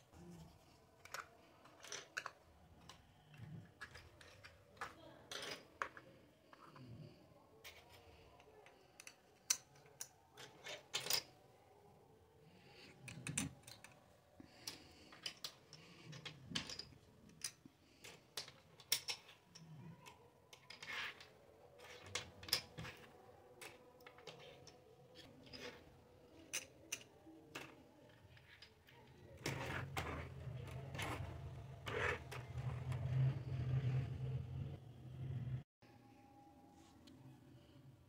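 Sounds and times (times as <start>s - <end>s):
plastic toy cutlery clicking: 9.0s - 11.3s.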